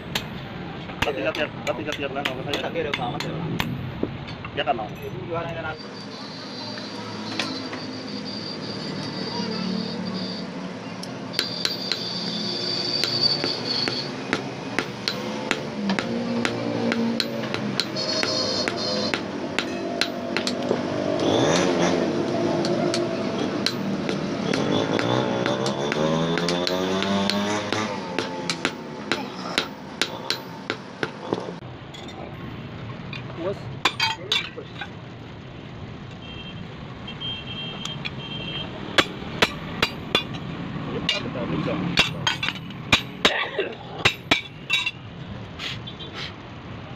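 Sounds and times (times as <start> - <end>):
hammer ringing on anvil: 11.4 - 20.6, 22.6 - 31.2, 39.0 - 40.4.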